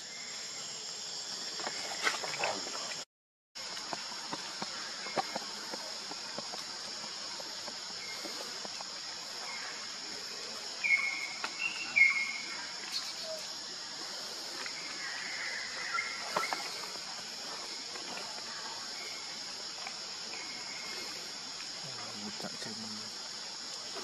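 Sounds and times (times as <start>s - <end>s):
insects droning: 0.0s - 3.0s, 3.6s - 24.0s.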